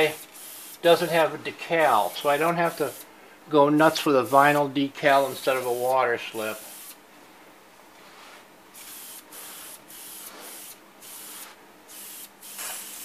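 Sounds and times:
aerosol spray gun hissing: 0:00.0 - 0:01.3, 0:01.9 - 0:03.1, 0:06.5 - 0:07.0, 0:08.8 - 0:13.0.

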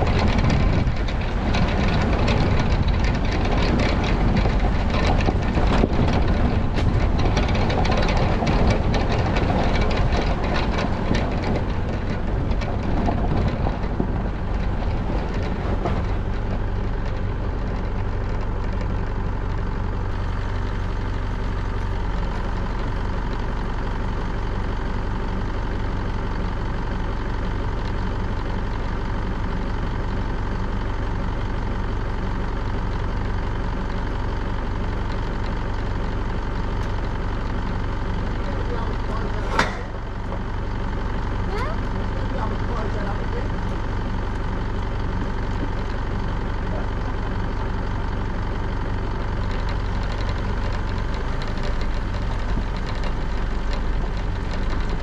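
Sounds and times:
engine idling: 0:00.0 - 0:55.0
tyres on gravel: 0:00.0 - 0:55.0
vehicle engine running: 0:00.0 - 0:55.0.

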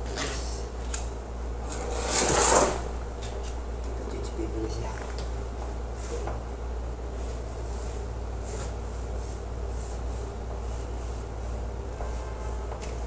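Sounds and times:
steady low hum: 0:00.0 - 0:13.0
scrubbing wall with sponge: 0:07.2 - 0:12.4.

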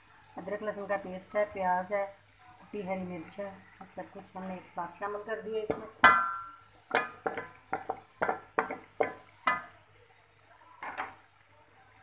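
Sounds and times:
spoon knocking on metal pot: 0:05.6 - 0:09.7.

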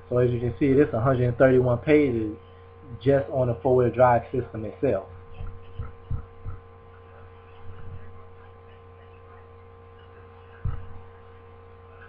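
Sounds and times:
electrical hum: 0:00.0 - 0:12.0
soft low thumps: 0:05.3 - 0:06.7, 0:10.6 - 0:11.0.

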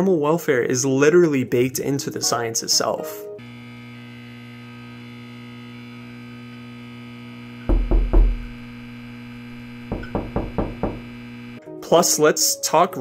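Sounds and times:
deep bass hits: 0:07.7 - 0:08.8, 0:09.6 - 0:11.1
electronic synth drone: 0:08.2 - 0:11.6.

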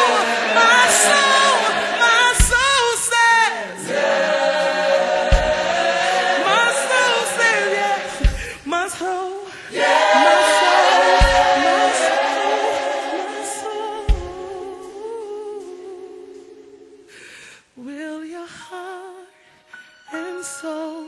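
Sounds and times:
gospel choir singing: 0:00.0 - 0:17.2
low thump: 0:05.3 - 0:05.7, 0:08.2 - 0:08.5, 0:11.2 - 0:11.6, 0:14.1 - 0:14.4.

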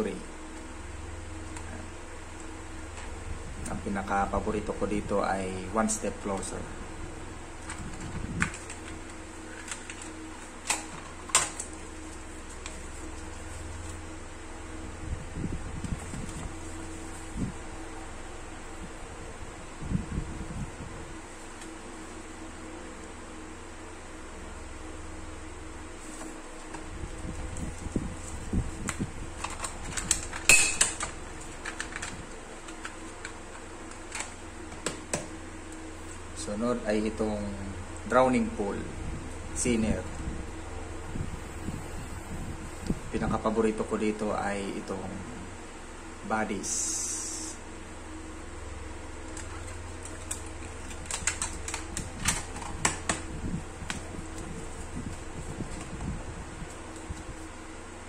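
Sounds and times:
fan hum: 0:00.0 - 0:58.0
plastic cassette case clicks: 0:50.0 - 0:53.2.

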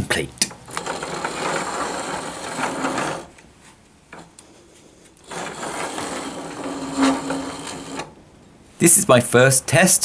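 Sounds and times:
lathe rubbing and scraping: 0:00.6 - 0:03.4, 0:04.1 - 0:08.2
low machine hum: 0:04.1 - 0:08.4.

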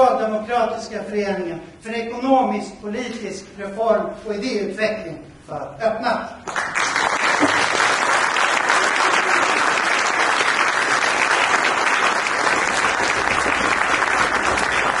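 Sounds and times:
audience applauding: 0:06.4 - 0:15.0.

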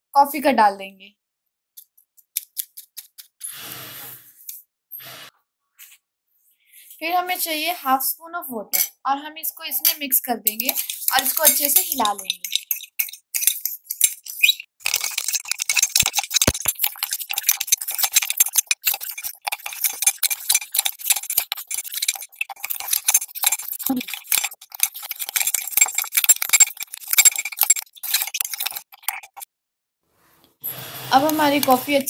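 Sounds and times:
spoon scraping and clinking in mug: 0:10.5 - 0:29.4, 0:31.2 - 0:32.0.

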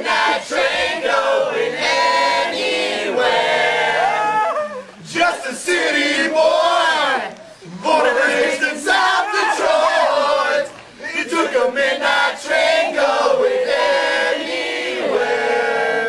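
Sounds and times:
group singing and chanting: 0:00.0 - 0:16.0.

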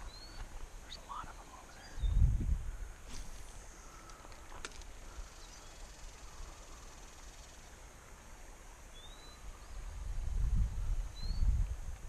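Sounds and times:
rising bird chirp: 0:00.0 - 0:07.8, 0:08.9 - 0:10.0, 0:10.8 - 0:11.6
faint high hiss: 0:00.0 - 0:12.0.

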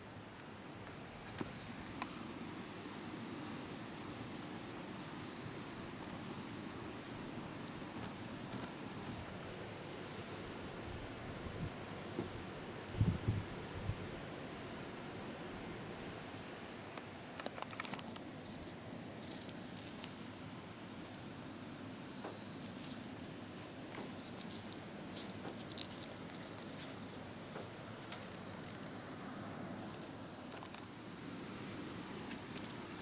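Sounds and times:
faint outdoor background noise: 0:00.0 - 0:33.0
small bird chirping: 0:03.9 - 0:04.2, 0:06.5 - 0:07.2, 0:17.9 - 0:20.6, 0:22.2 - 0:23.0, 0:23.7 - 0:28.5, 0:29.9 - 0:30.3.

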